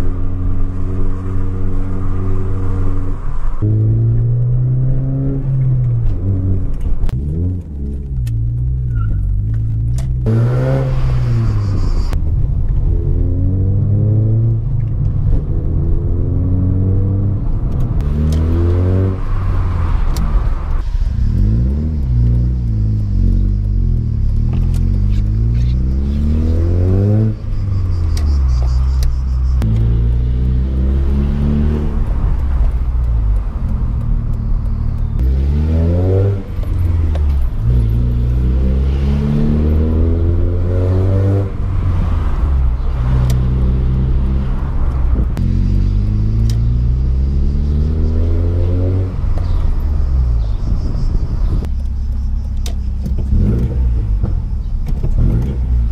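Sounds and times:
car engine accelerating: 0:00.0 - 0:55.9
tyre and road rumble: 0:00.0 - 0:55.9.

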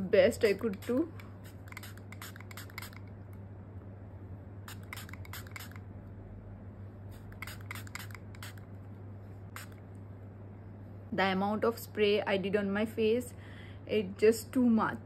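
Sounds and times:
low steady hum: 0:00.0 - 0:15.0
mist spray bottle spritzing: 0:00.4 - 0:03.1, 0:04.7 - 0:05.8, 0:07.2 - 0:08.7, 0:09.5 - 0:09.8.

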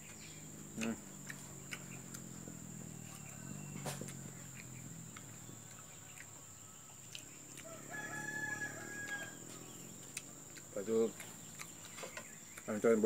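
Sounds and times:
rooster crowing: 0:02.8 - 0:04.5, 0:06.4 - 0:09.9.

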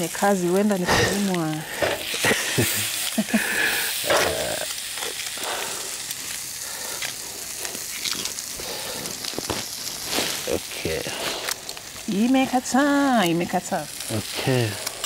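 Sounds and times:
food sizzling in a frying pan: 0:00.0 - 0:15.0.

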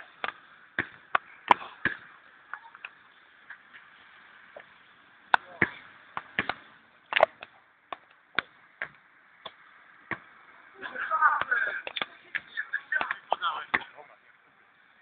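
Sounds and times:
basketball bouncing and hitting rim: 0:00.2 - 0:02.1, 0:05.3 - 0:06.6.

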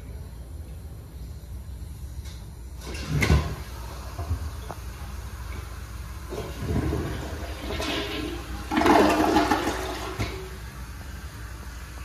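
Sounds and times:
toilet flushing: 0:02.8 - 0:12.0.

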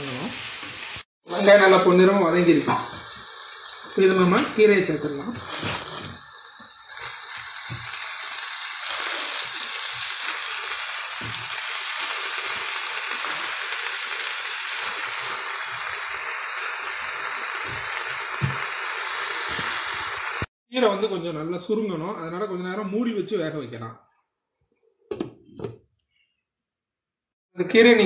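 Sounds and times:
vegetables sizzling in a frying pan: 0:00.0 - 0:20.5.

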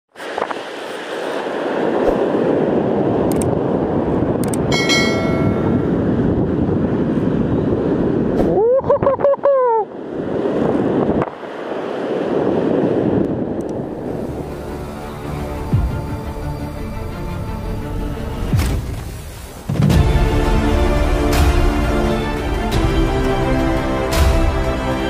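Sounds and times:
breaking surf: 0:00.1 - 0:08.5, 0:10.0 - 0:25.0
wind buffeting microphone: 0:00.2 - 0:20.7
short ringing chime: 0:04.7 - 0:06.2.

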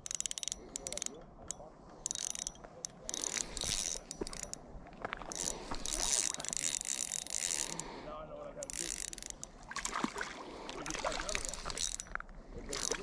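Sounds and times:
fishing reel clicking whir: 0:00.0 - 0:04.6, 0:05.3 - 0:08.0, 0:08.6 - 0:09.6, 0:11.2 - 0:13.0.

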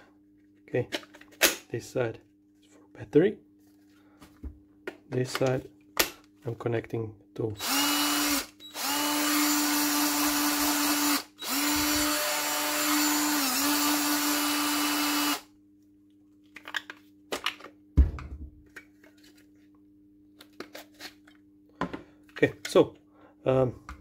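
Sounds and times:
cordless drill motor whining: 0:07.6 - 0:15.5.

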